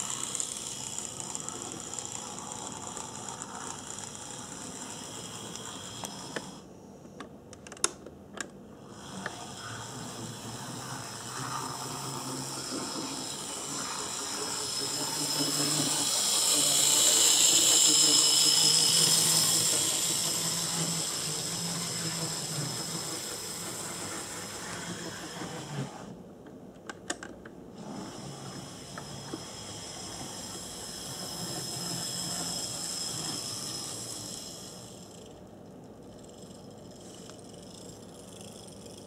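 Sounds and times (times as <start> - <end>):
small electric motor whining: 0.0 - 6.7, 8.8 - 26.2, 27.8 - 35.4
gears and wheels rattling: 10.3 - 25.6.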